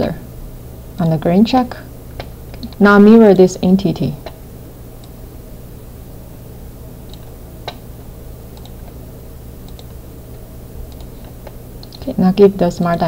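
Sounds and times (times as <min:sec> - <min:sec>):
steady low hum: 0:00.0 - 0:13.0
computer mouse clicking: 0:07.0 - 0:07.8, 0:08.5 - 0:09.0, 0:09.6 - 0:10.0, 0:10.9 - 0:12.1.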